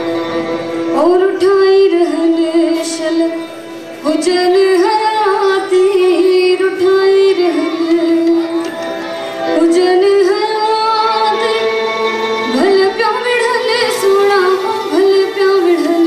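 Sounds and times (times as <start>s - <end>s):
sustained musical accompaniment: 0.0s - 16.0s
woman singing folk song: 0.9s - 8.8s, 9.5s - 16.0s.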